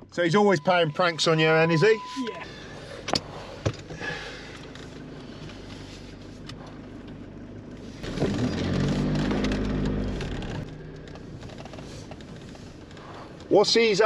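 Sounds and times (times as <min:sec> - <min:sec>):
engine drone: 0:00.0 - 0:14.0
road rumble: 0:00.0 - 0:14.0.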